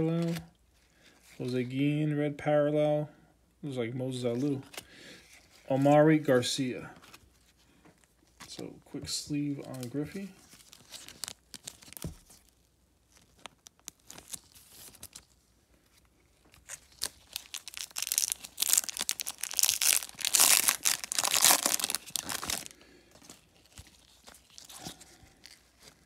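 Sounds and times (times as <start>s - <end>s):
cards and wrapper rustling: 0.1s - 0.5s, 9.3s - 26.0s
wrapper tearing and crackling: 10.4s - 15.4s, 16.5s - 26.0s.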